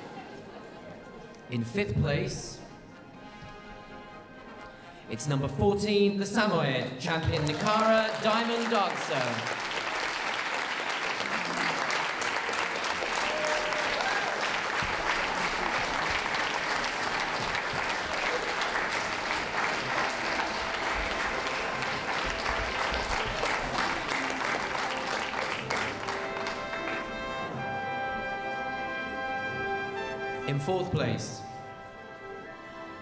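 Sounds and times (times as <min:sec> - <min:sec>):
audience applauding: 0:06.9 - 0:28.0.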